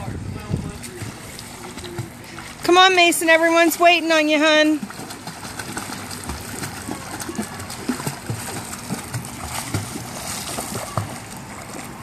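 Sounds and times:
pool water splashing: 0.0s - 12.0s.

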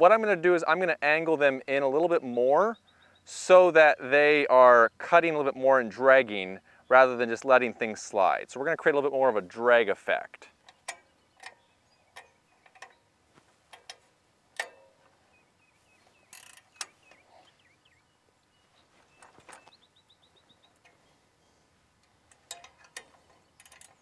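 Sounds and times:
metal clicks and knocks: 10.6s - 13.0s, 13.7s - 15.2s, 22.0s - 24.0s.

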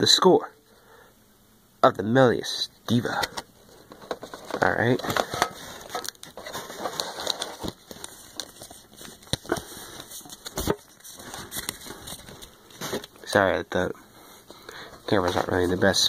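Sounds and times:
cards being handled: 3.1s - 13.3s
foil pack crinkling: 3.7s - 13.3s.

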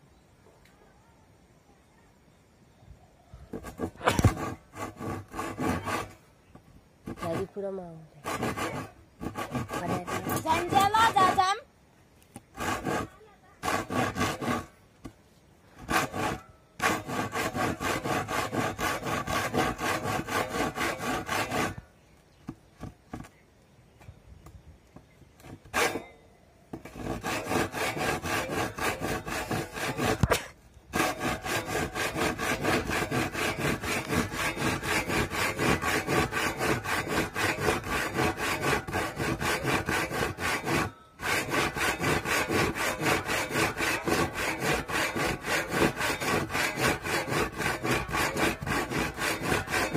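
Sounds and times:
handsaw cutting wood: 3.5s - 6.2s, 7.0s - 11.6s, 12.5s - 14.8s, 15.8s - 21.8s, 25.7s - 26.1s, 26.7s - 49.9s.

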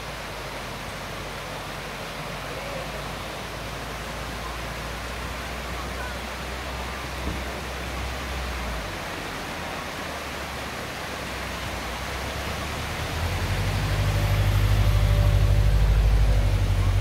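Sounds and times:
mountain river rushing: 0.0s - 17.0s
low rumble: 12.3s - 17.0s.

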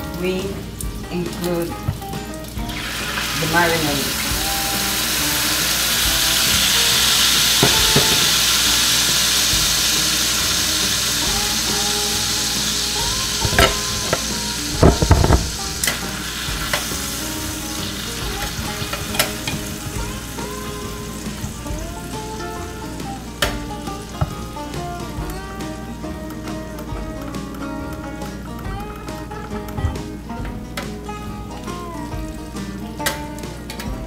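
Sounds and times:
marinade sizzling in a hot pan: 0.0s - 29.6s
metal tongs clacking against pan: 13.4s - 14.9s, 15.8s - 17.0s, 17.8s - 20.0s.

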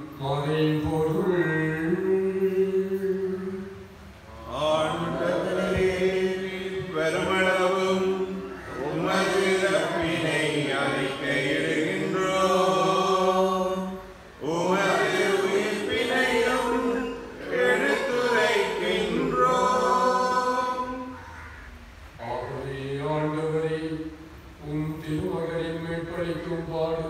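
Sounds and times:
man chanting a prayer: 0.0s - 11.5s, 22.2s - 27.0s.

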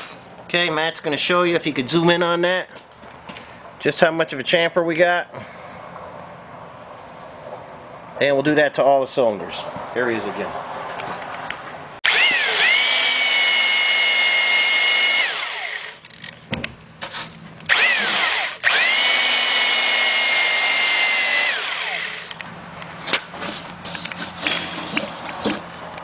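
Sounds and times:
power tool motor whining: 12.0s - 16.2s, 17.7s - 22.4s.

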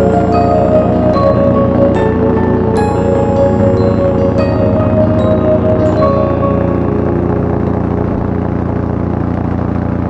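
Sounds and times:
ambient chime music: 0.0s - 9.0s
paramotor engine drone: 0.0s - 10.0s.

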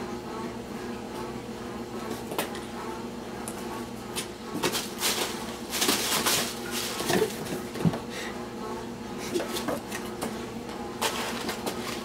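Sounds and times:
crumpled paper rustling: 4.6s - 7.6s, 11.0s - 12.0s.

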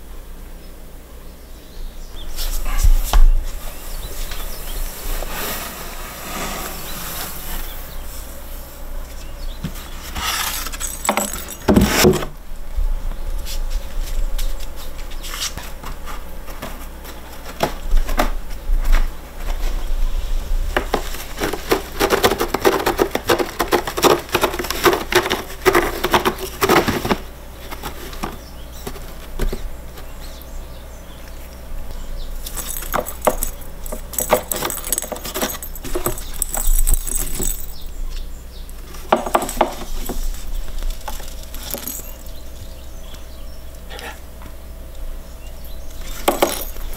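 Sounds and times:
cats clawing at scratcher: 20.8s - 30.3s, 32.4s - 37.9s, 46.0s - 46.9s.

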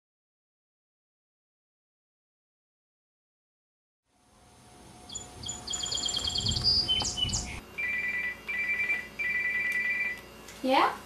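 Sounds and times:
outdoor background noise: 4.1s - 11.0s
high bird chirps and trill: 5.1s - 10.0s
telephone ringing two-tone trill: 7.8s - 10.2s.

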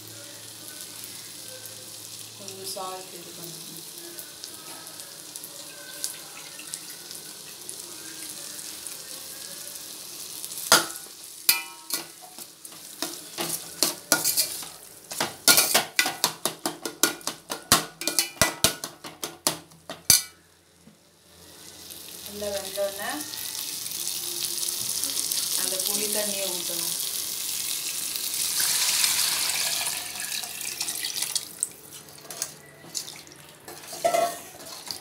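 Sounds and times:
food sizzling in a pot: 0.0s - 35.0s
metal spatula scraping a pot: 13.3s - 14.6s, 33.7s - 35.0s.

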